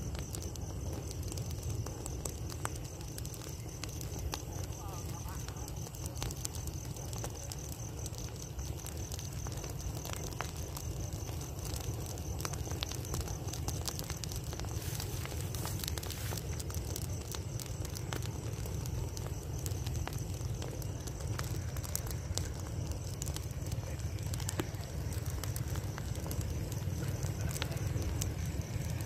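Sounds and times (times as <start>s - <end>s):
straw fire crackling: 0.0s - 29.0s
steady low rumble: 6.5s - 29.0s.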